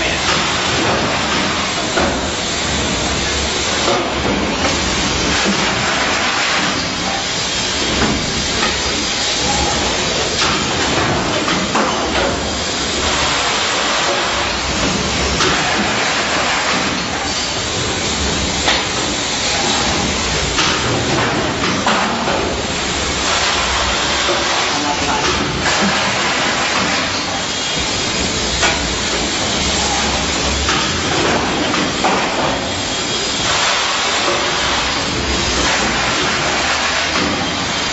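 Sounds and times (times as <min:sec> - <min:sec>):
machinery hissing: 0:00.0 - 0:37.9.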